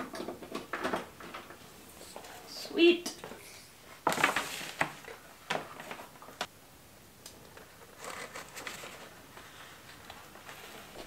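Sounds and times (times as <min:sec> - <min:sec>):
plastic wrap crinkling: 0:04.0 - 0:06.4.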